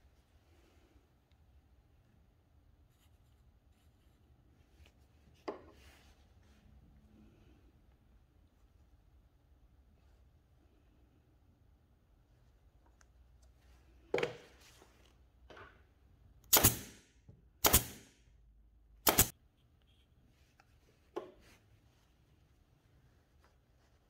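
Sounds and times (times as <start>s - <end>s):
nail gun firing: 16.5s - 18.2s, 19.0s - 19.3s.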